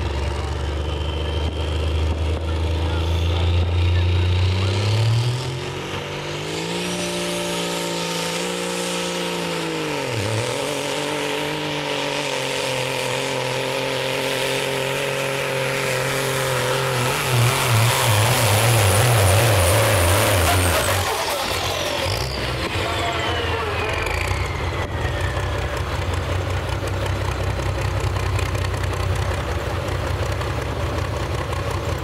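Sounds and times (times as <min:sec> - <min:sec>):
truck diesel engine under load: 0:00.0 - 0:32.0
high whistle: 0:23.1 - 0:25.8.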